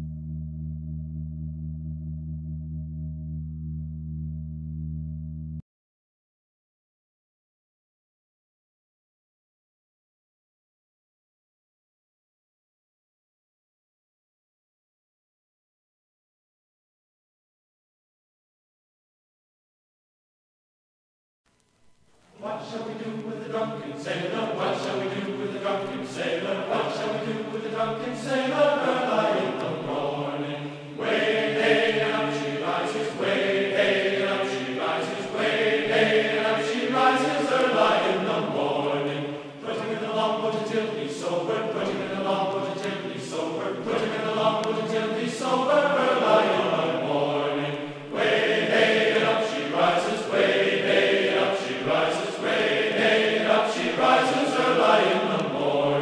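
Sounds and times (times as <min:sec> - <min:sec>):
choir singing a chant: 0:22.4 - 0:56.0.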